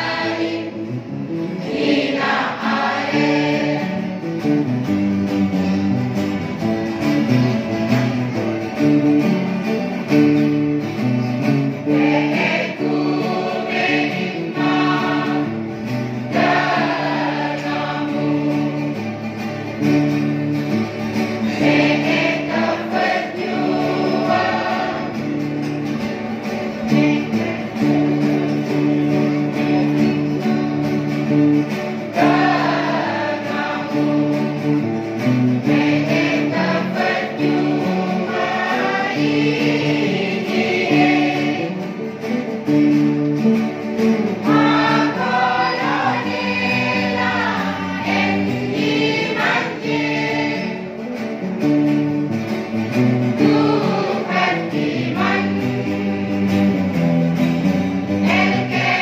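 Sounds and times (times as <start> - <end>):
choir singing in unison: 0.0 - 4.3, 11.8 - 19.2, 21.3 - 30.2, 31.9 - 34.9, 35.5 - 42.0, 44.2 - 51.0, 53.2 - 57.0, 58.0 - 59.0
strummed acoustic guitars: 0.0 - 59.0.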